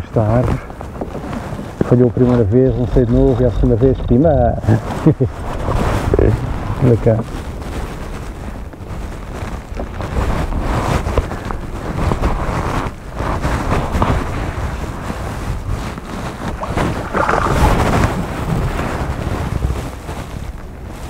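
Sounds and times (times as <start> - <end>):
wind buffeting the microphone: 0.0 - 21.0
river water rushing and splashing: 16.5 - 18.8.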